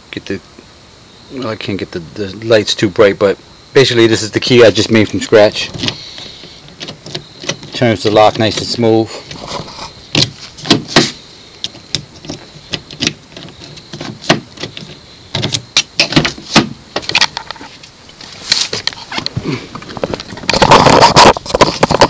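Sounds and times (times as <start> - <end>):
loud clatter: 20.3 - 22.0.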